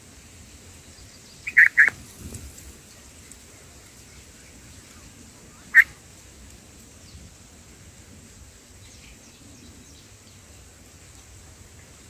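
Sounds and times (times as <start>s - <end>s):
bird short sharp calls: 1.4s - 2.0s.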